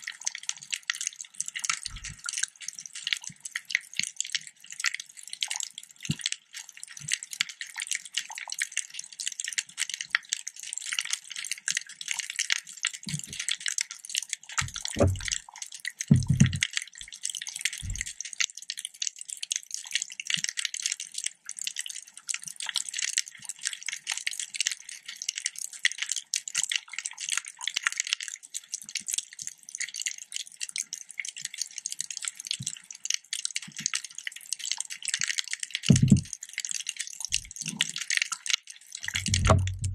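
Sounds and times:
low underwater thumps: 0:14.6 - 0:15.4, 0:16.1 - 0:16.6, 0:17.8 - 0:18.1, 0:35.9 - 0:36.3, 0:39.1 - 0:39.9
snapping shrimp crackling: 0:35.9 - 0:39.9.

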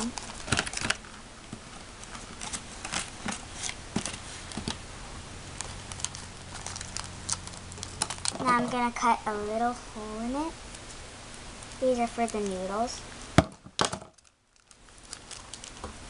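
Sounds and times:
plastic clicks and crinkles: 0:00.0 - 0:04.8, 0:05.6 - 0:08.6, 0:10.7 - 0:12.7, 0:13.8 - 0:16.0.

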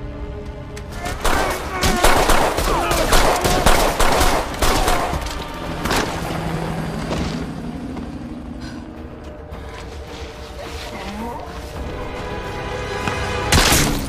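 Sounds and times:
automatic gunfire: 0:01.2 - 0:05.2.

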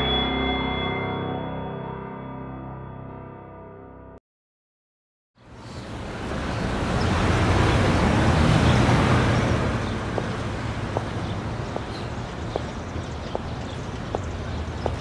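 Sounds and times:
city traffic rumble: 0:05.4 - 0:15.0
slow footsteps: 0:09.4 - 0:15.0.

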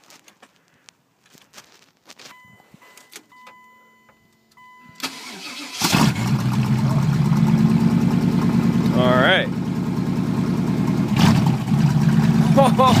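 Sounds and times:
car warning chime beeping: 0:02.3 - 0:05.8
car engine starting and idling: 0:02.4 - 0:13.0.

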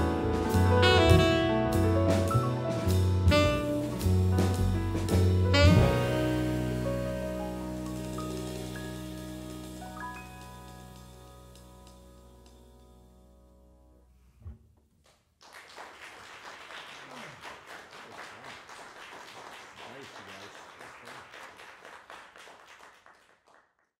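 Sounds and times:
jazz music notes: 0:00.0 - 0:14.6
audience applauding: 0:15.4 - 0:24.0.

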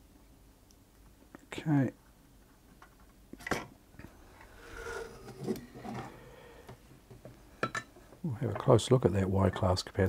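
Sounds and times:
soft rubbing: 0:04.2 - 0:06.3.

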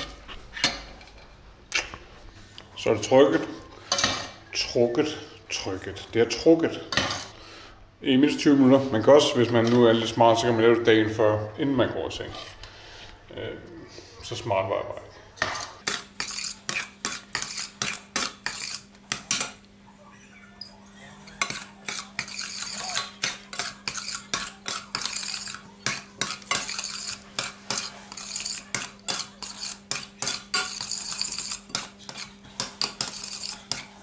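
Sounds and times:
metal spoon scraping a pot: 0:15.6 - 0:19.6, 0:21.1 - 0:34.0.

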